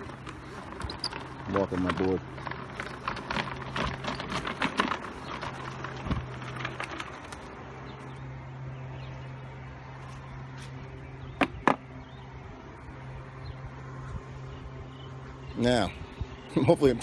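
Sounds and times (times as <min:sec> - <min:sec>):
board rattling over concrete: 0:00.0 - 0:08.0, 0:11.4 - 0:11.8
electric skateboard motor humming: 0:00.0 - 0:15.4.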